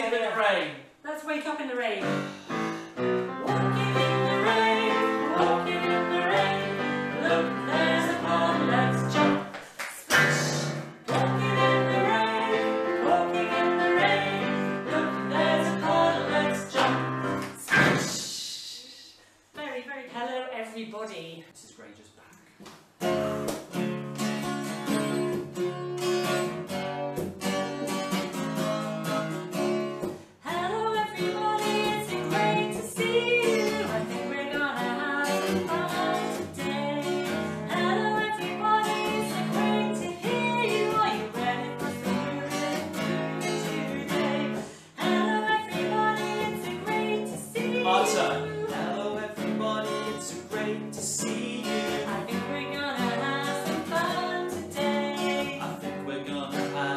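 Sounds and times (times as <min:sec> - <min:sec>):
acoustic guitar strumming: 0:02.0 - 0:09.5, 0:10.1 - 0:18.2, 0:23.0 - 0:56.9
woman singing: 0:03.4 - 0:09.5, 0:11.1 - 0:19.1, 0:30.4 - 0:56.9.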